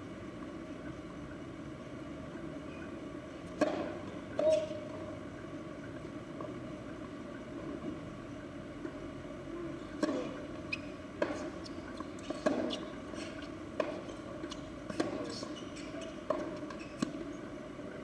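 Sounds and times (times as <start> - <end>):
tennis ball bounces: 3.5 - 4.7, 10.0 - 10.4, 11.2 - 17.3
tennis ball hits: 3.6 - 4.6, 12.2 - 13.0, 13.8 - 15.5.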